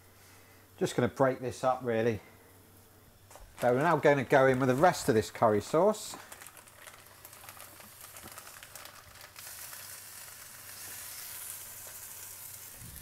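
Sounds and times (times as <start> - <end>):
curry sizzling in a wok: 6.4 - 13.0.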